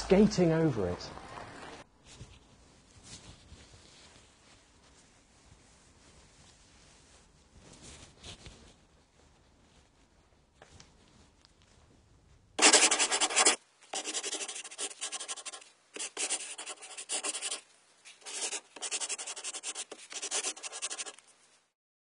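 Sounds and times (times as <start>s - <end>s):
marker pen on whiteboard: 12.6s - 21.2s.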